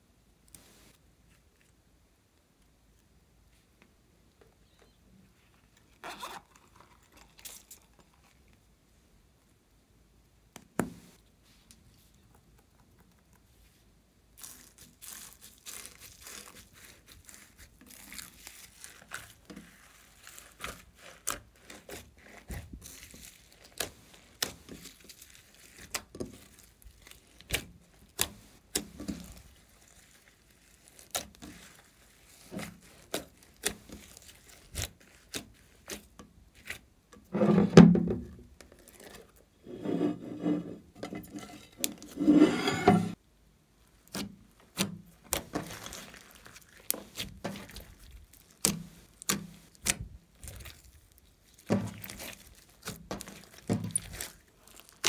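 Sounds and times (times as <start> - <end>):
hands kneading sticky slime: 14.3 - 37.1, 43.9 - 55.0
slime squelching off glass dish: 44.1 - 55.0.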